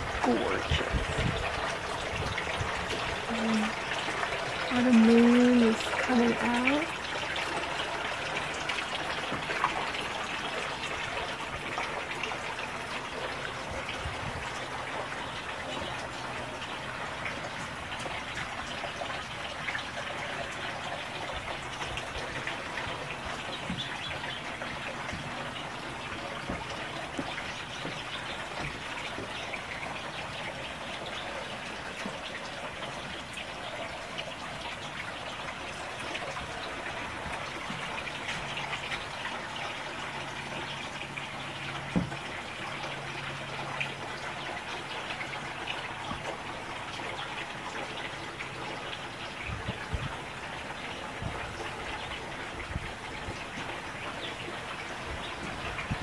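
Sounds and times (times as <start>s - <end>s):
running water trickling: 0.0s - 56.0s.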